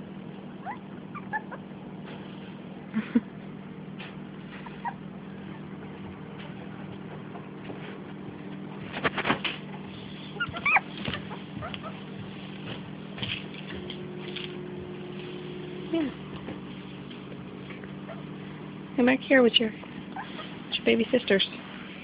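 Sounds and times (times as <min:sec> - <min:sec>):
steady low hum: 0:00.0 - 0:22.0
puppies squeaking and yipping: 0:00.6 - 0:01.7, 0:04.5 - 0:05.5, 0:10.0 - 0:12.2, 0:20.1 - 0:20.6.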